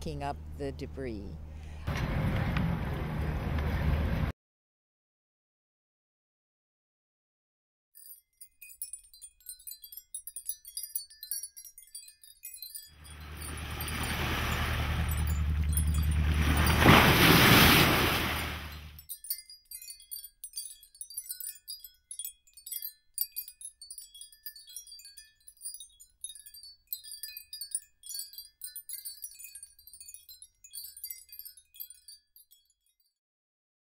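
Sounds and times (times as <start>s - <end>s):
high tinkling chime notes: 8.0s - 16.9s, 18.6s - 33.2s
loud rushing noise: 16.2s - 18.9s.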